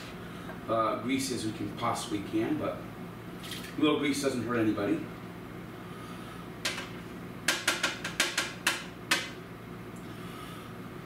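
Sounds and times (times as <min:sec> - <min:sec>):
plastic spatula knocking on frying pan: 0:07.5 - 0:09.3.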